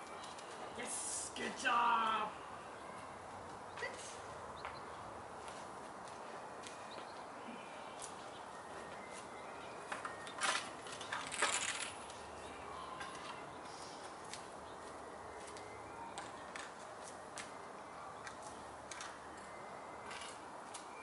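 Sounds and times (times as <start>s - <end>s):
footsteps on concrete: 5.4s - 7.1s, 14.0s - 17.5s.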